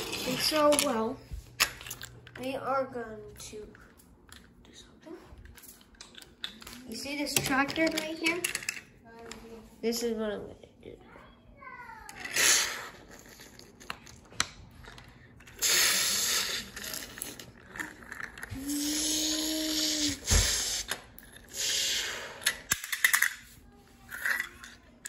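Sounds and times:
plastic toys clicking and knocking: 0.1 - 1.0, 5.4 - 9.4, 22.4 - 23.5, 24.1 - 25.0
child humming: 18.5 - 21.0.

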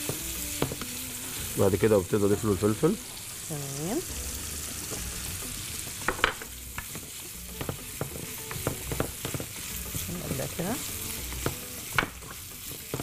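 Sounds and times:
sausage and pepper sizzling in oil: 0.0 - 13.0
spatula scraping and tapping pan: 6.0 - 13.0.

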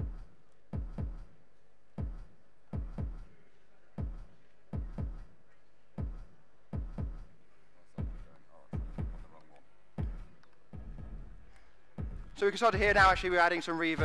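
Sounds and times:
electronic drum thuds: 0.0 - 1.3, 2.0 - 3.3, 4.0 - 5.3, 6.0 - 7.3, 8.0 - 9.4, 10.0 - 14.0.

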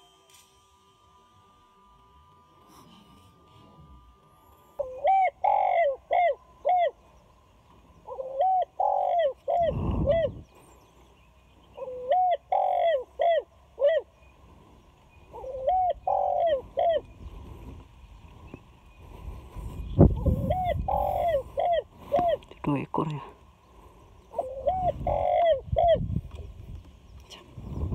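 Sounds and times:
dove cooing: 4.8 - 7.0, 8.0 - 10.5, 11.8 - 14.2, 15.3 - 17.3, 20.0 - 22.5, 24.3 - 26.2.

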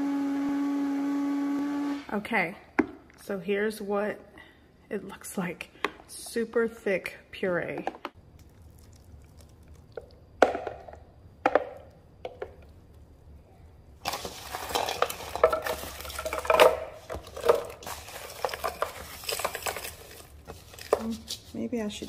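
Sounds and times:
spoon scraping plastic cup: 14.1 - 22.0.

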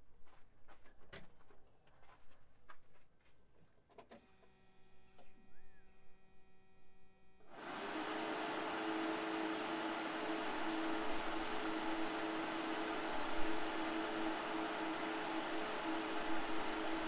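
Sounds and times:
electric fans running: 7.4 - 17.0.

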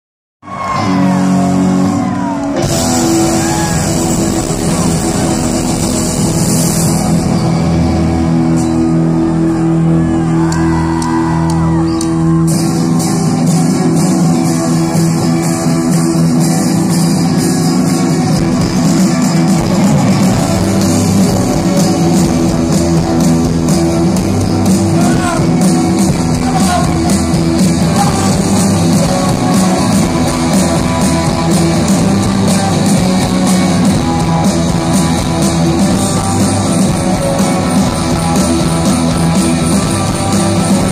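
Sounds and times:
live rock band playing: 0.4 - 40.9
person singing: 26.3 - 34.7.

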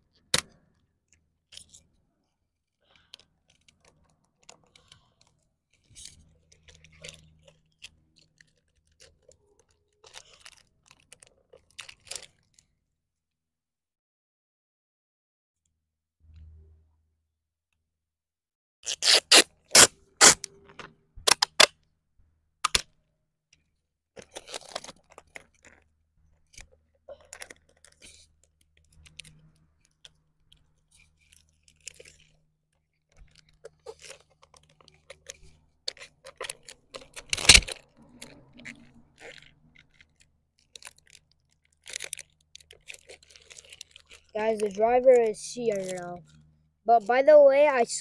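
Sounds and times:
plastic toy clicks and rattles: 3.0 - 12.6, 24.2 - 25.8, 33.2 - 46.4
loud plastic snap: 21.2 - 21.7, 22.6 - 22.9.

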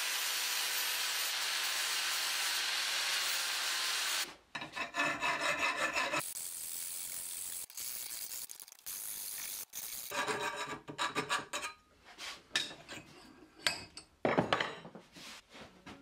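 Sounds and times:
file rasping on steel tube: 4.6 - 6.3.

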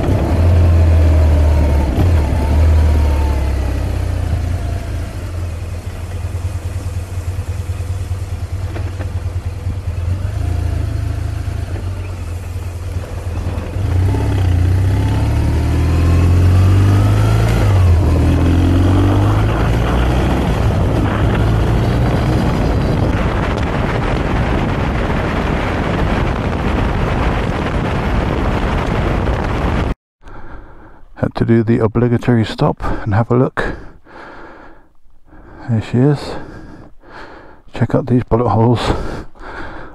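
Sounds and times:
motorcycle engine running: 0.0 - 26.5
wind rush: 12.9 - 30.0.

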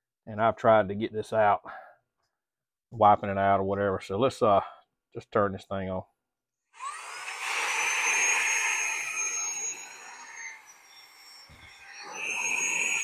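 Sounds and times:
handheld vacuum cleaner motor whine: 6.8 - 13.0.

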